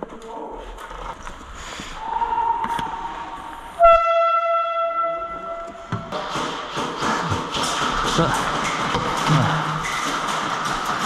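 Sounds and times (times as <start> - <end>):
loud horn blast: 3.8 - 6.0.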